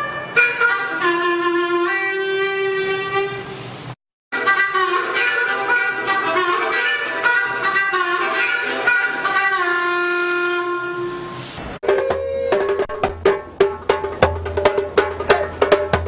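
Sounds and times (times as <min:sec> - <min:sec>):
saxophone melody: 0:00.0 - 0:03.6, 0:04.4 - 0:12.9
djembe hand drumming: 0:11.8 - 0:16.0.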